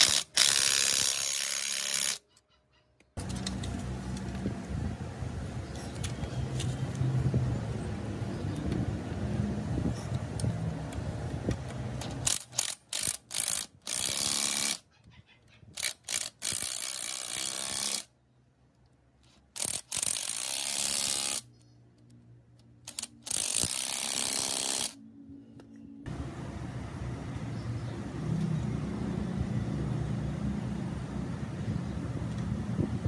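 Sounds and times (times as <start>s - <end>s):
socket ratchet clicking: 11.6s - 14.8s, 15.8s - 18.1s, 19.2s - 25.0s.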